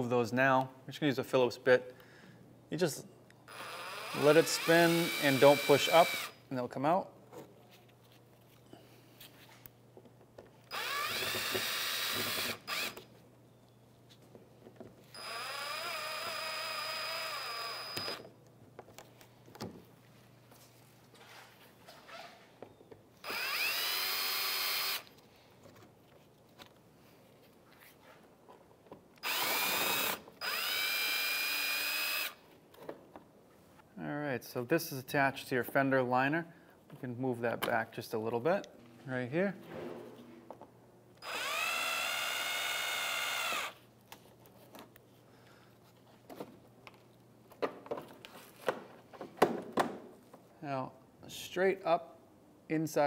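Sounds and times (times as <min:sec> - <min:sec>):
cordless drill whining: 0:03.5 - 0:06.4, 0:10.7 - 0:13.0, 0:15.1 - 0:18.3, 0:23.2 - 0:25.1, 0:29.2 - 0:32.4, 0:41.2 - 0:43.8.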